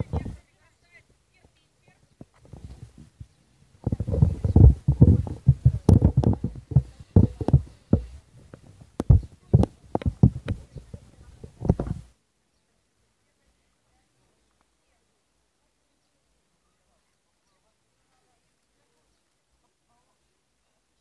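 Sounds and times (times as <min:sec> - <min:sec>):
wind buffeting microphone: 0:00.0 - 0:00.5, 0:02.1 - 0:12.1.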